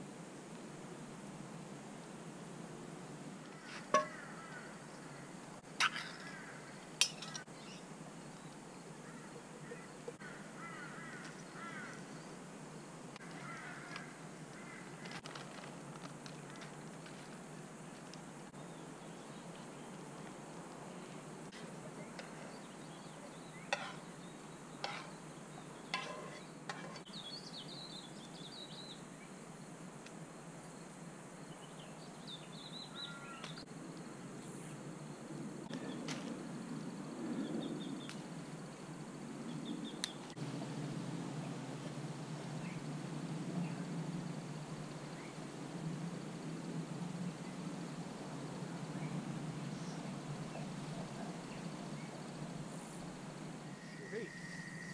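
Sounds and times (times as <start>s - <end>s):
birds chirping: 20.8s - 29.3s, 49.0s - 54.9s
low steady rumble: 40.4s - 53.6s.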